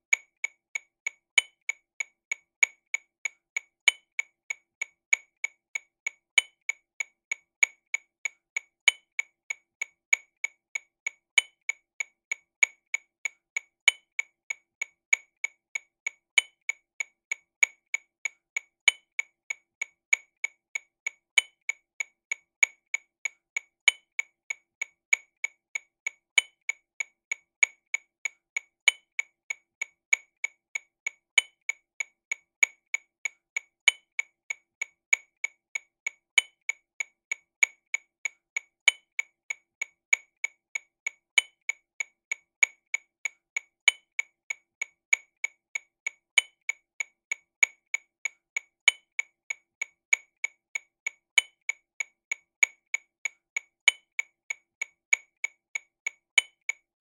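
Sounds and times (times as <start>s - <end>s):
accented metronome click: 0.0s - 57.0s
metronome clicks: 38.8s - 39.2s, 48.8s - 49.2s, 53.8s - 54.2s, 56.4s - 57.0s.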